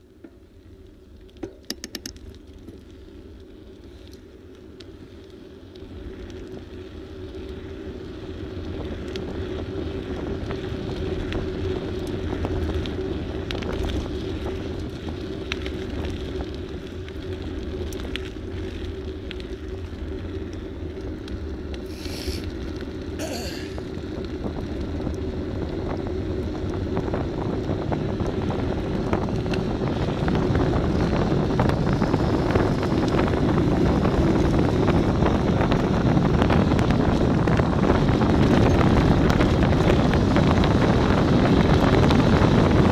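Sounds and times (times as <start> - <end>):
road rumble from moving vehicle: 0.0 - 42.9
wind buffeting microphone: 21.6 - 42.9.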